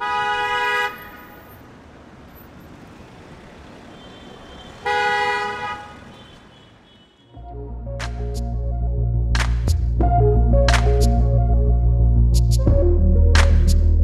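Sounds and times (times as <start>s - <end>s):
car horn blasts: 0.0s - 1.4s, 3.9s - 7.4s
street traffic noise: 0.0s - 9.9s.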